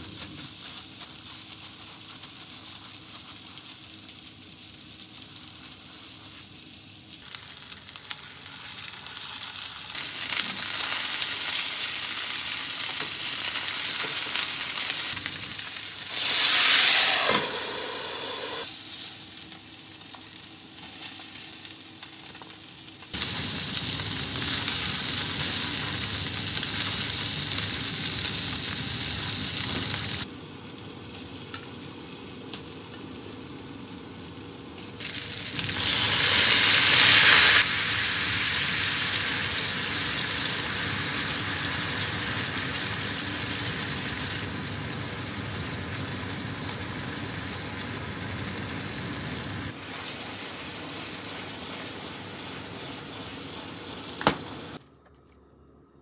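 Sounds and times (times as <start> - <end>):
meat patties sizzling in skillet: 0.0 - 54.8
liquid hissing in hot pan: 14.6 - 19.4, 23.1 - 30.3, 35.0 - 44.6, 49.5 - 54.8.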